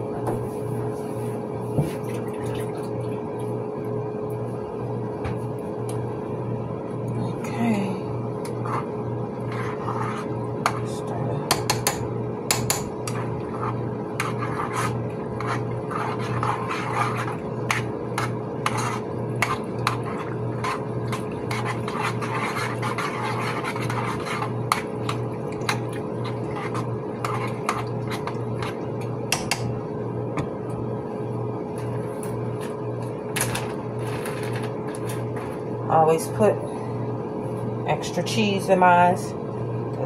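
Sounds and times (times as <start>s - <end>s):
kitchen exhaust fan hum: 0.0s - 40.0s
utensil scraping cookware: 13.0s - 25.2s.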